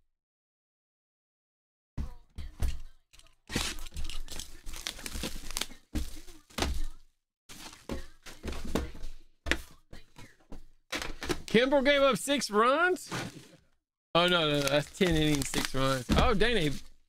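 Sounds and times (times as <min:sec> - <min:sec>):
cardboard scraping and crinkling: 0:03.5 - 0:09.0, 0:13.0 - 0:17.0
cardboard boxes knocking on table: 0:16.0 - 0:16.8.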